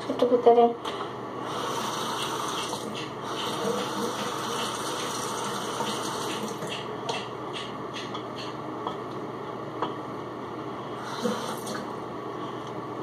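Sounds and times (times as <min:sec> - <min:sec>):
water running from tap: 0:01.5 - 0:06.8, 0:11.0 - 0:11.9.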